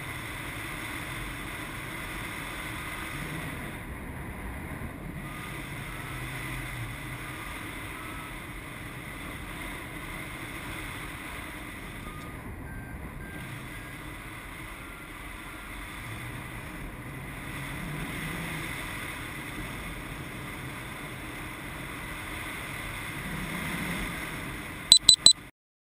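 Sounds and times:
faint variometer beeps: 24.9s - 25.4s
loud high camera beeps: 24.9s - 25.4s.

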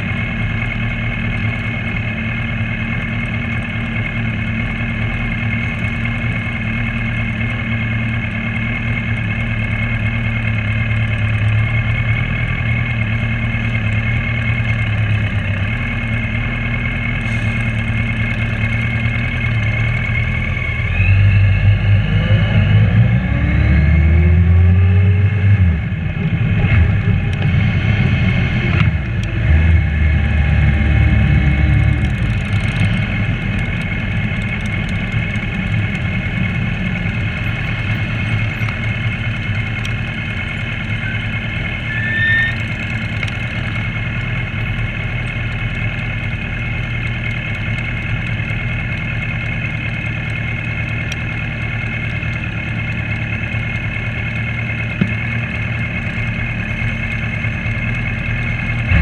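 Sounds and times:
motorcycle engines: 0.0s - 59.0s.

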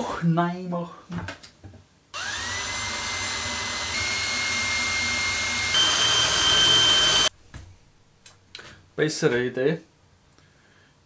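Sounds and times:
cordless drill whining: 2.2s - 7.3s.

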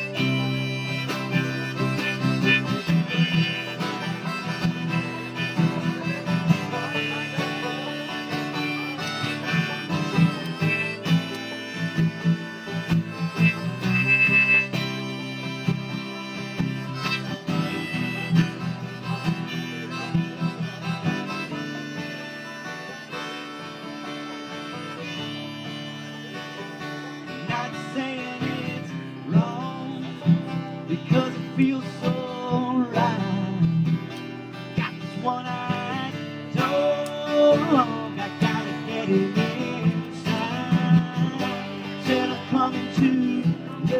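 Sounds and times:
strummed acoustic guitar: 0.0s - 43.9s
banjo rolls: 0.2s - 14.4s.

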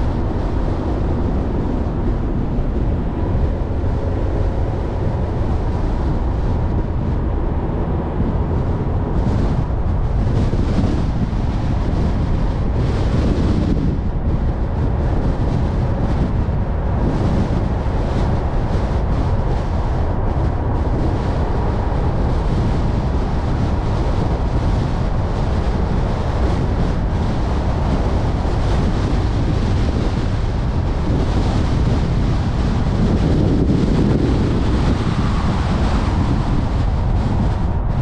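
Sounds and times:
car road noise: 0.0s - 38.0s
wind buffeting microphone: 0.0s - 38.0s
wind rush: 0.0s - 38.0s.

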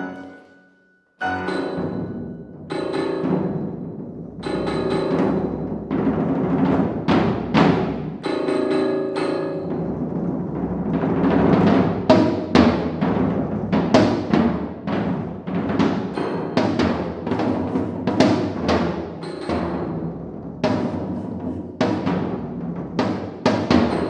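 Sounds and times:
piano chord: 0.0s - 2.4s
drums fast irregular strokes: 9.6s - 24.0s.

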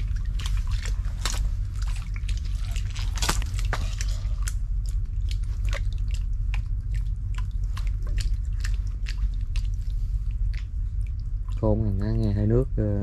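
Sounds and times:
wet mud squelching and popping: 0.0s - 12.3s
steady low rumble: 0.0s - 13.0s.

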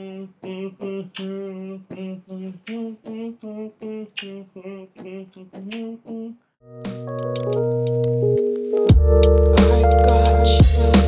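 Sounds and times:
person singing a simple tune: 0.0s - 6.5s, 9.6s - 10.9s.

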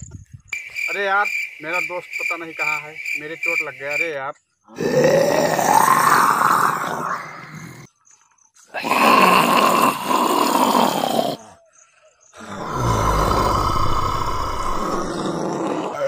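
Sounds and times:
zombie growls and roars: 4.7s - 7.9s, 8.7s - 11.6s, 12.4s - 16.0s
deep low rumble: 13.0s - 15.3s.

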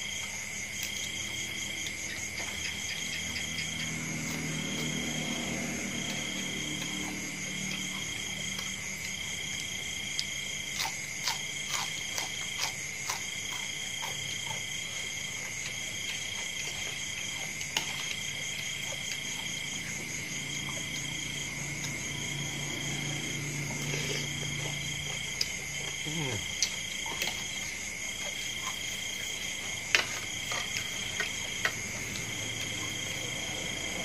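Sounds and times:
frogs and insects calling: 0.0s - 34.0s.

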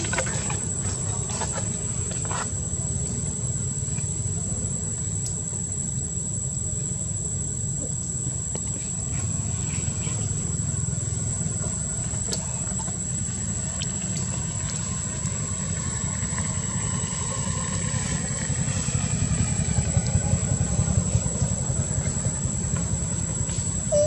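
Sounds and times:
high-pitched whine: 14.6s - 24.0s.

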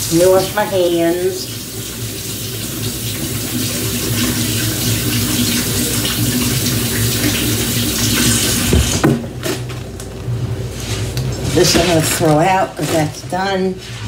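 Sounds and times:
tap running over washing hands: 1.4s - 9.2s.

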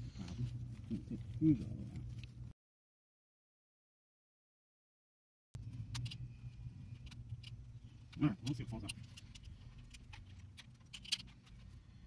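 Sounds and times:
steady low hum: 0.0s - 2.6s, 5.6s - 12.0s
connectors and bolts clicking: 5.6s - 11.8s.

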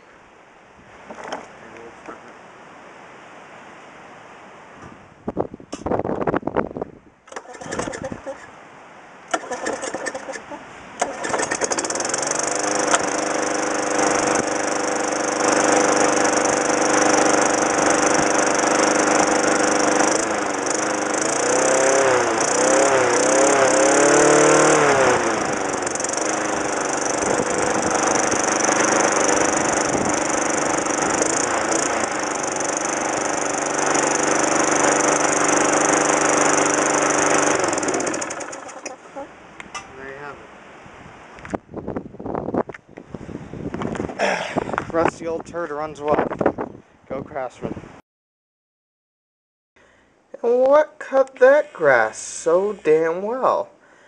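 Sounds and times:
lawn mower engine running: 7.3s - 8.4s, 9.3s - 39.2s
starter rope pulls: 7.3s - 8.5s, 9.3s - 39.0s.

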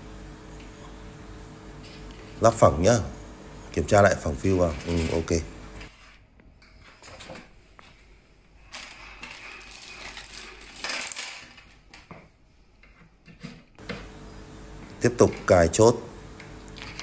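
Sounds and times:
plastic bag crinkling: 8.6s - 11.9s.

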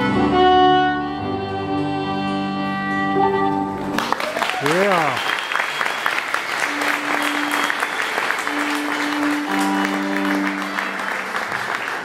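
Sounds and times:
fiddle bowed notes: 0.0s - 3.9s, 6.6s - 11.4s
audience applauding: 3.8s - 12.0s.

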